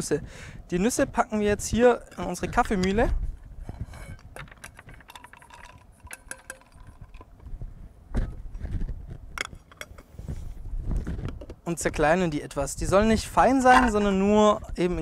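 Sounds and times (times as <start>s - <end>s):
nuts rattling into a metal cup: 4.4s - 7.3s.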